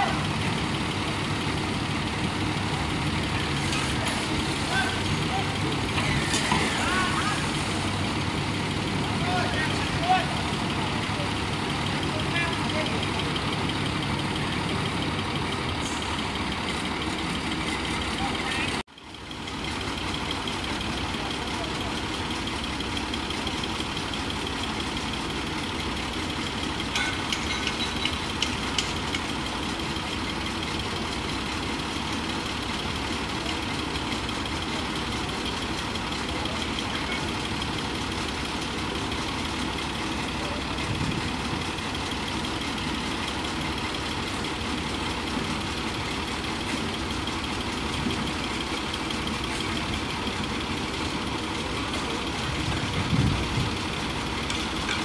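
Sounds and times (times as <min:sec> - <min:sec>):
diesel engine idling: 0:00.0 - 0:55.0
sharp metal clanks: 0:26.8 - 0:29.2.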